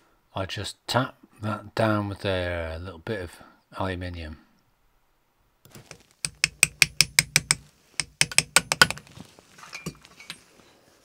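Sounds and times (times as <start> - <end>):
quick light metal taps: 6.2 - 9.0.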